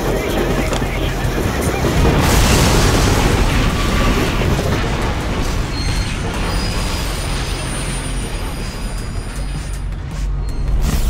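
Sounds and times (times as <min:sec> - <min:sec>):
explosion boom rumbling: 0:00.8 - 0:09.2.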